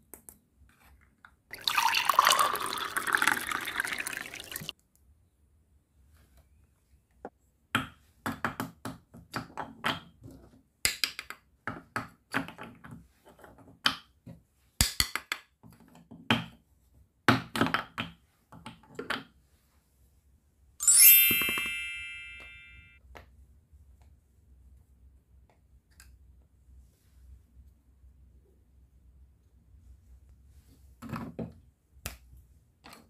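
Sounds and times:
bright ringing chime: 20.8s - 23.0s.

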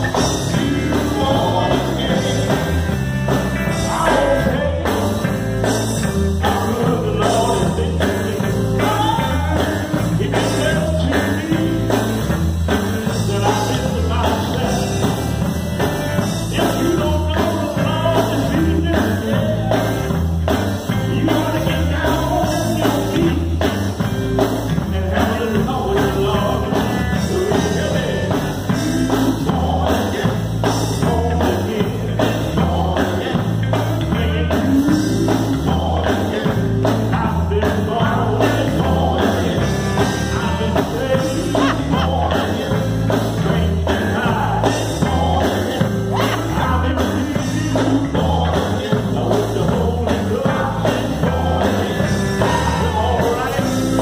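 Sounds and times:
gospel group singing: 0.0s - 3.0s, 3.6s - 5.3s, 6.4s - 12.2s, 24.8s - 54.0s
bass line: 0.0s - 54.0s
drum kit beat: 0.0s - 54.0s
electric guitar: 0.0s - 54.0s.

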